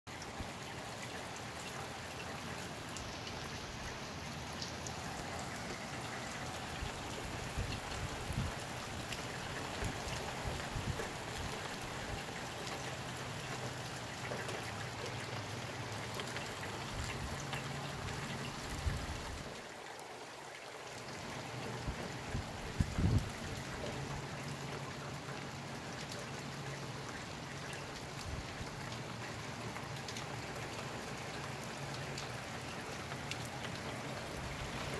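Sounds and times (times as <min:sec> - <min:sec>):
steady rain falling: 0:00.1 - 0:34.9
wind gusts on microphone: 0:07.4 - 0:08.6, 0:22.3 - 0:23.5.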